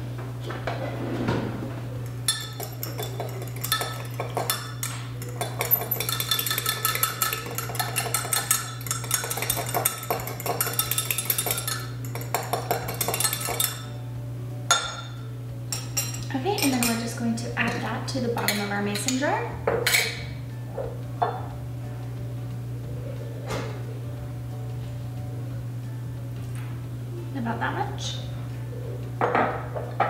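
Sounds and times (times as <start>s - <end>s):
steady low hum: 0.0s - 30.0s
utensil clinking against glass: 2.3s - 13.9s, 14.7s - 17.8s.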